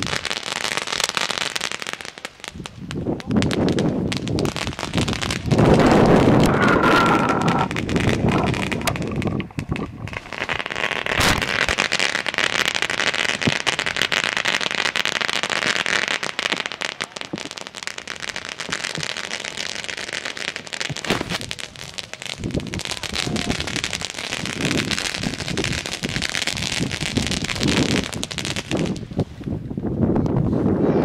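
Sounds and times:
firework fountain hissing and crackling: 0.0 - 30.8
loud rush: 5.4 - 11.7.

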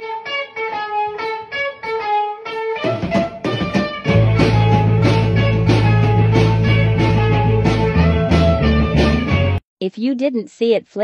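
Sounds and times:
plucked guitar notes: 0.0 - 9.6
bass line with drums: 3.1 - 9.6.

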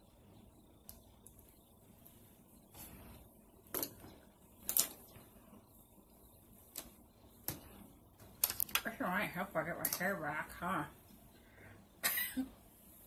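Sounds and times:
soft rustle: 1.2 - 8.4.

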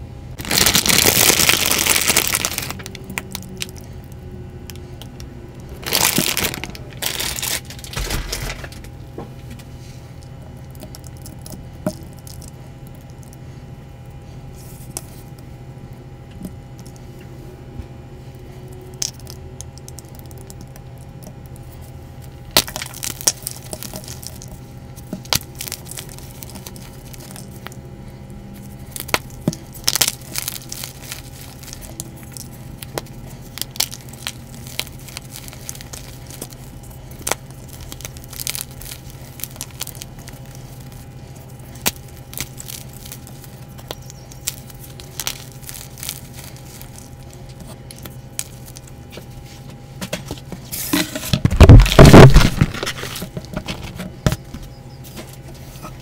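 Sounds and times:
chalk blocks cracking and snapping: 22.5 - 27.8, 28.6 - 49.3, 51.4 - 55.3.

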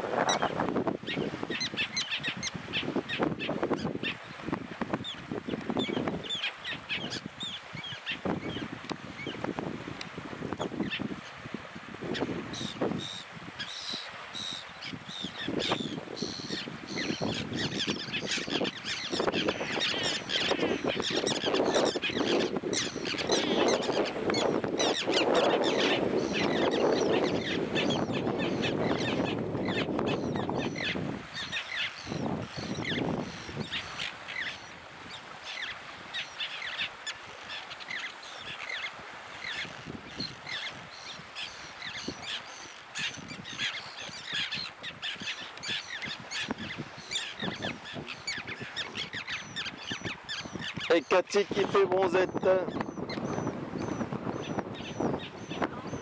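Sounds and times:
terns calling: 12.1 - 56.0.

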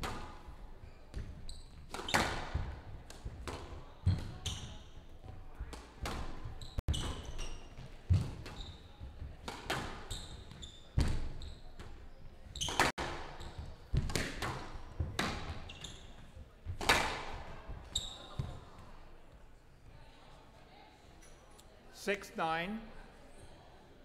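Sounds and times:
shoes squeaking on floor: 0.8 - 2.7, 3.9 - 5.3, 6.2 - 9.2, 9.8 - 14.0, 14.6 - 16.4, 17.8 - 18.8
squash ball hits echoing: 1.1 - 4.5, 9.4 - 11.3, 12.7 - 15.8, 16.7 - 17.5.

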